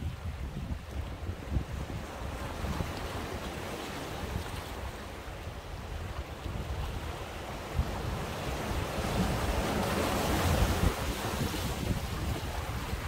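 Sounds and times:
sea waves washing in: 0.0s - 13.0s
wind buffeting microphone: 0.0s - 13.0s.

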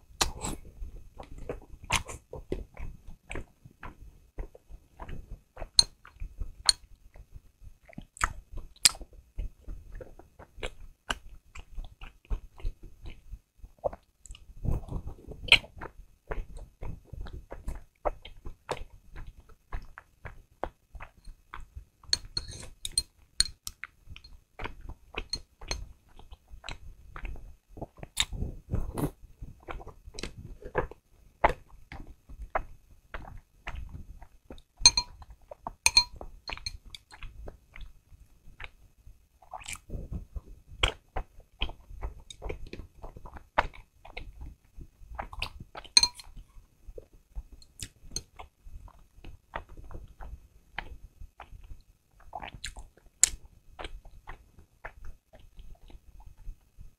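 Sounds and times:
wet chewing: 0.2s - 13.2s, 13.8s - 38.0s, 38.6s - 38.8s, 39.4s - 56.5s
chopsticks clinking on glass bowl: 22.2s - 23.6s, 34.9s - 35.1s, 35.9s - 37.0s, 46.0s - 46.3s.

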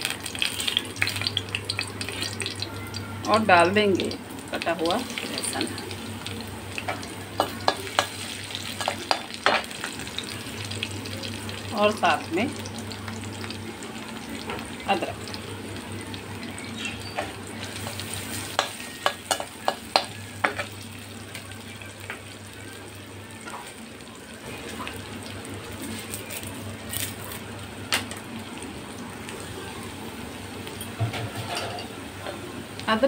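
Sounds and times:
sharp pops of frying: 0.0s - 2.7s, 4.6s - 11.3s, 16.5s - 22.3s
spices sizzling in hot oil: 0.0s - 33.0s.

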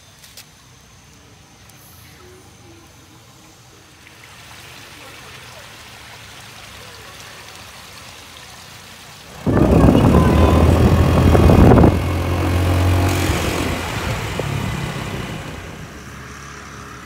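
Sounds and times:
stream trickling: 0.0s - 17.0s
wind rushing over microphone: 9.3s - 16.2s
scooter engine running: 9.3s - 17.0s.

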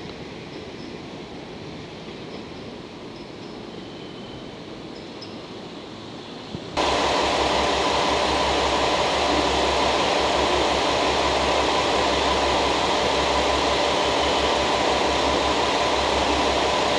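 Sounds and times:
diesel railcar engines idling: 6.8s - 16.9s.

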